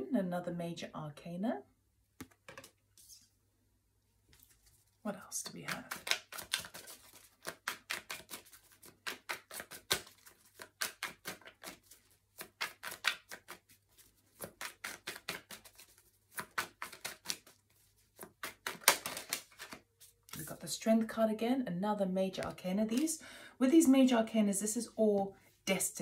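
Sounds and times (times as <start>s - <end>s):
cards being shuffled: 4.4s - 4.8s, 5.6s - 20.6s, 22.9s - 23.2s.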